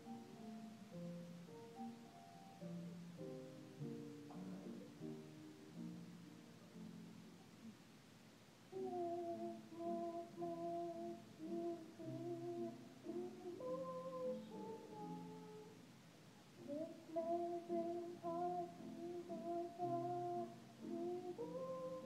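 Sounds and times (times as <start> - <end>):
piano accompaniment: 0.0 - 7.2, 16.6 - 22.0
children's choir singing: 8.7 - 15.8, 16.6 - 22.0.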